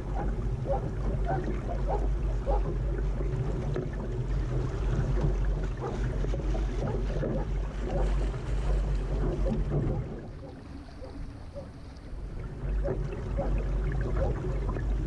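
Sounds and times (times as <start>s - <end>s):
water sloshing against a hull: 0.0s - 15.0s
wind rumble on microphone: 0.0s - 15.0s.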